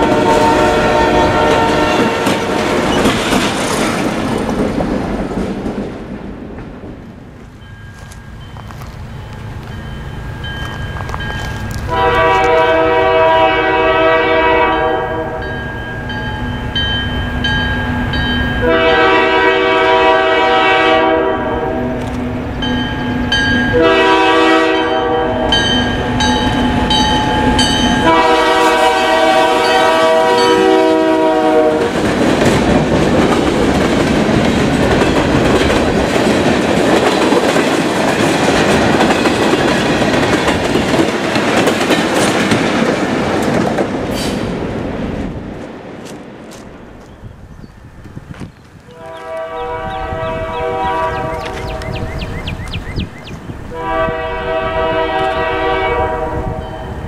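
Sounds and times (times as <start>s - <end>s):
locomotive air horn: 0.0s - 2.9s, 11.9s - 15.6s, 18.6s - 22.3s, 23.7s - 25.8s, 28.0s - 32.0s, 48.9s - 51.9s, 53.6s - 57.0s
train passing on rails: 0.0s - 57.0s
wheels clickety-clack: 1.4s - 6.8s, 31.8s - 44.5s.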